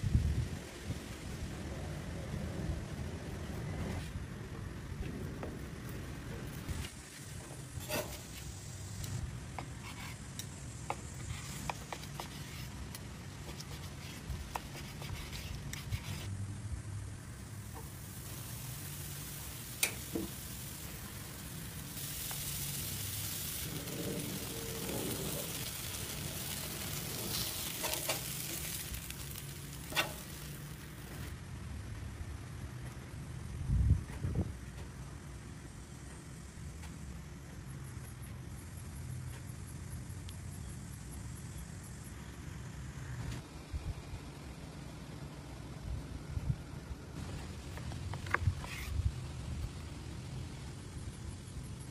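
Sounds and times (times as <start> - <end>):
griddle humming: 1.8 - 38.0
soft sizzle: 5.0 - 31.4
metal spatula scraping and tapping: 7.8 - 8.3, 29.9 - 30.4.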